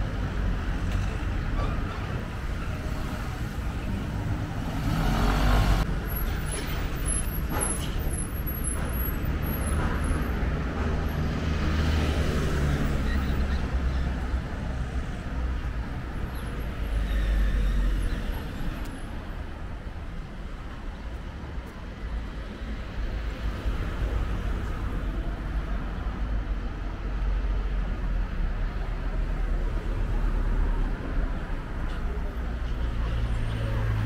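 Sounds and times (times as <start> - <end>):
motor traffic passing: 2.0 - 8.1.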